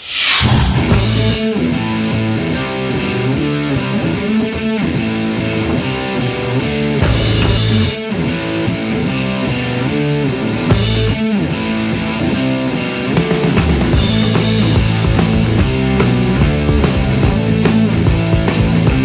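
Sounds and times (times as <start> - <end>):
cymbal crash: 0.0 - 1.7
rock music with electric guitar: 0.1 - 19.0.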